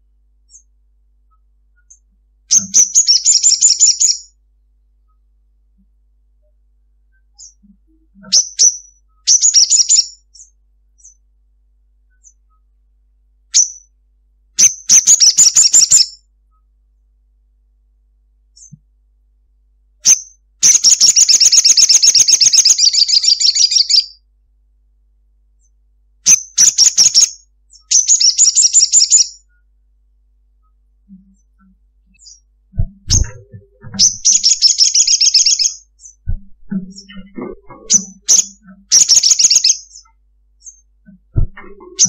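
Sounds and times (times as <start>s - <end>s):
bird calling with chattering trills: 1.8s - 4.3s, 7.4s - 11.2s, 14.6s - 16.2s, 20.0s - 24.2s, 26.3s - 29.4s, 31.1s - 42.0s.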